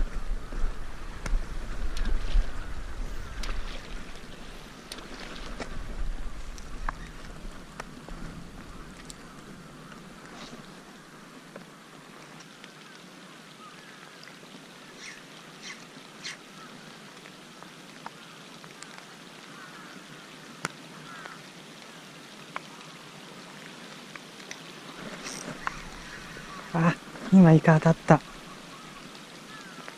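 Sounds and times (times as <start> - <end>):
sea water washing: 0.0 - 11.4
wind: 0.0 - 29.9.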